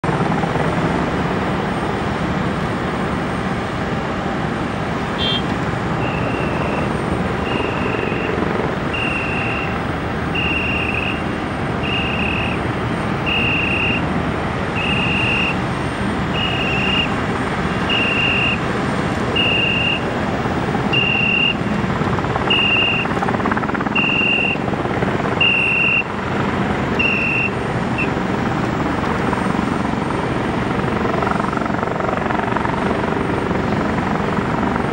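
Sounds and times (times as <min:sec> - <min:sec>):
aircraft turbine engine: 0:00.0 - 0:34.9
high electronic beep: 0:06.0 - 0:09.8, 0:13.3 - 0:14.0, 0:14.8 - 0:15.6, 0:16.4 - 0:17.1, 0:17.9 - 0:18.6, 0:22.5 - 0:23.0.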